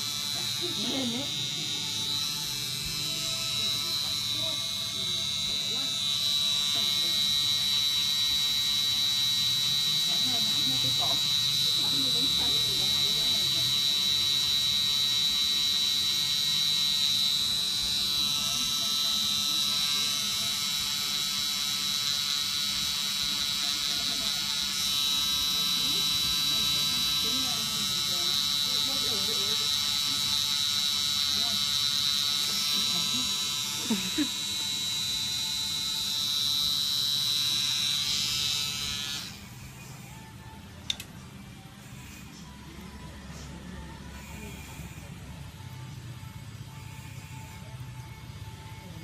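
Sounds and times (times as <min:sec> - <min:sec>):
tattoo pen motor whining: 0:00.0 - 0:49.0.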